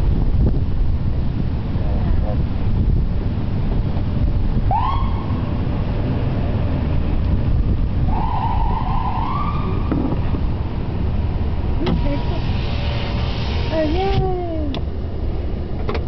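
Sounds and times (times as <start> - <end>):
car road and engine rumble: 0.0 - 16.0
ambulance siren: 4.7 - 5.6, 8.1 - 10.2.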